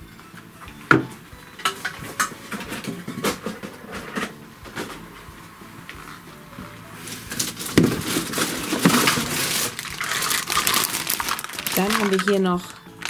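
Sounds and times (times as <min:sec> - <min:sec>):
hard plastic parts knocking: 0:07.4 - 0:12.5.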